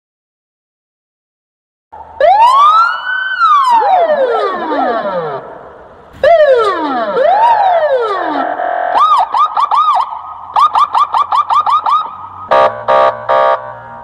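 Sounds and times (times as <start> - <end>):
police siren wailing and yelping: 2.2 - 13.7
harsh horn blasts: 8.3 - 9.2, 12.5 - 14.0.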